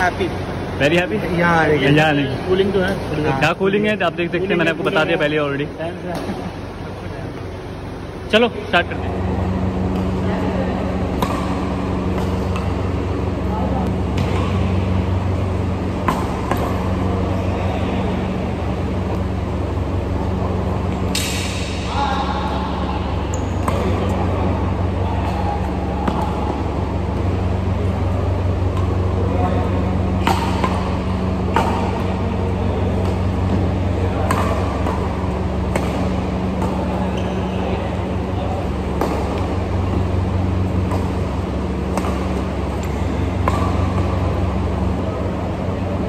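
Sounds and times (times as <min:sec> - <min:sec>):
air coolers humming: 0:00.0 - 0:46.0
racket hitting shuttlecock: 0:09.6 - 0:45.8.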